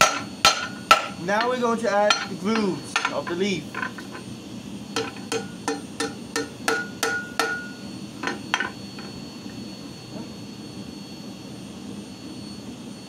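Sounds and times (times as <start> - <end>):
hammer striking steel anvil: 0.0 - 4.0, 5.0 - 8.7.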